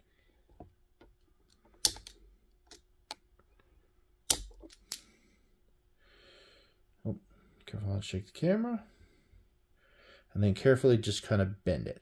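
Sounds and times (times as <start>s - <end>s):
plastic parts clicking: 0.5s - 3.7s, 4.3s - 5.0s
plastic snaps: 1.0s - 3.3s, 4.3s - 5.1s.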